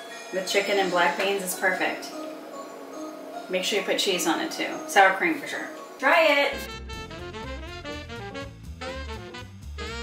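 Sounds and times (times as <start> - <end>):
upbeat swing jazz music: 6.5 - 10.0.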